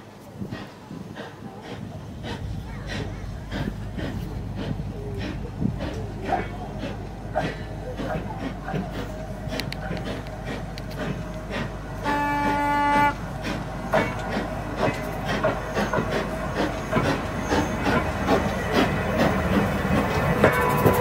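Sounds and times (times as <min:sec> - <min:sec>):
steam locomotive wheels clattering: 0:00.0 - 0:21.0
steam whistle: 0:12.0 - 0:13.2.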